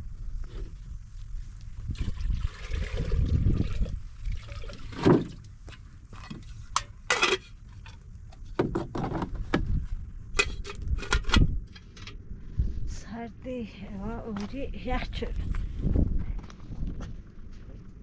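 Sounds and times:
water pouring into kettle: 0:01.9 - 0:05.0.

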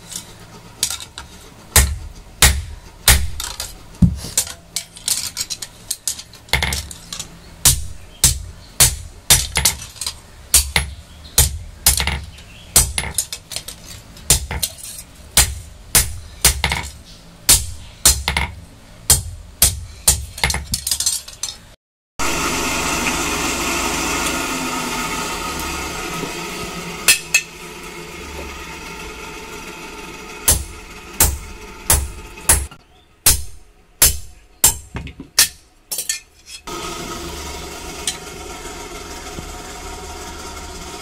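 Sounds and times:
multi-tone humming: 0:22.2 - 0:34.9, 0:36.7 - 0:41.0
hammer ringing on anvil: 0:27.1 - 0:27.5.

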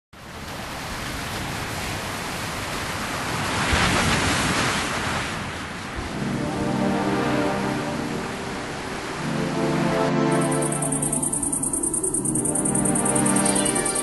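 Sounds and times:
wave crashing: 0:03.3 - 0:14.0.

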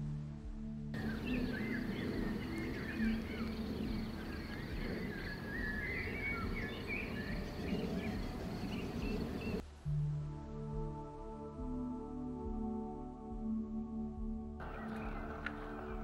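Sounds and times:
soft ambient music: 0:00.0 - 0:16.0
songbirds chirping and warbling: 0:01.0 - 0:09.6, 0:14.6 - 0:16.0
low outdoor rumble: 0:01.0 - 0:09.8, 0:14.6 - 0:16.0.

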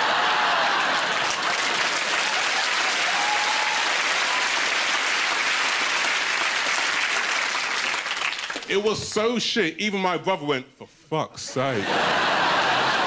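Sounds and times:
audience applauding: 0:00.0 - 0:09.0, 0:12.0 - 0:13.0
speech: 0:08.7 - 0:11.9.

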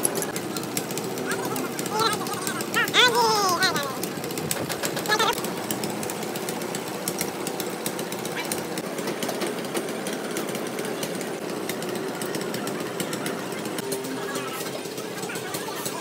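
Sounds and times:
machinery clattering: 0:00.0 - 0:16.0.

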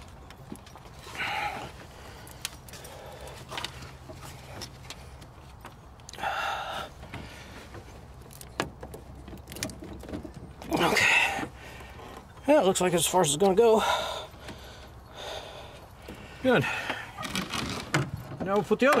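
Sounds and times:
light metal clicks of hose clamp: 0:02.2 - 0:06.2.

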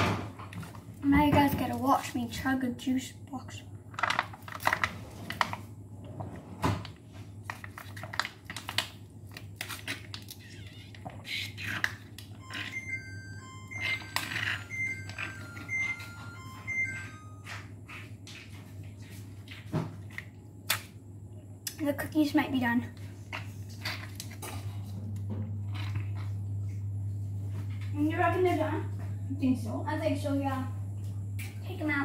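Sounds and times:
steady low hum: 0:11.0 - 0:32.0
oven timer beeps: 0:12.3 - 0:17.8.

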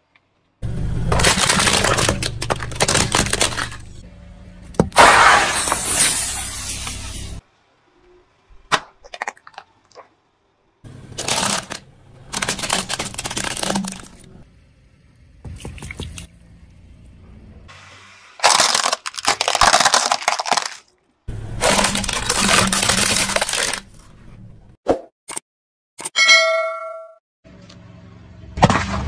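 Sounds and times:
plastic toys crunching under car tyre: 0:01.1 - 0:04.0, 0:11.1 - 0:14.4, 0:18.4 - 0:24.2.

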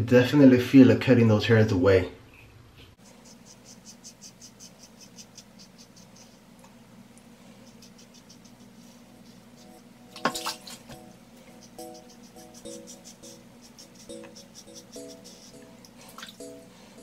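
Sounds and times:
razor scraping stubble: 0:03.0 - 0:06.4.

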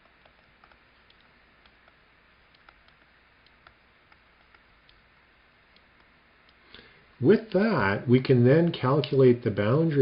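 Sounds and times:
stylus tapping tablet screen: 0:00.0 - 0:06.6.

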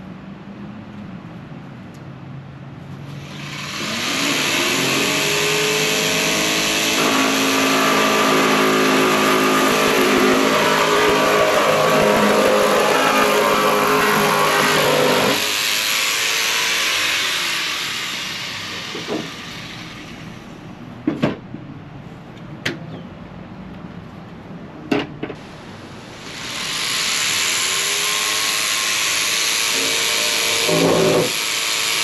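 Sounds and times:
jigsaw motor winding down: 0:03.2 - 0:20.4, 0:26.2 - 0:32.0
jigsaw cutting fibreboard: 0:03.3 - 0:19.8, 0:26.3 - 0:32.0.

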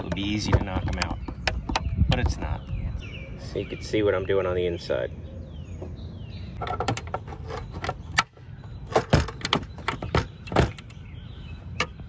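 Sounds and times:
hard plastic clicking and snapping: 0:00.0 - 0:02.5.

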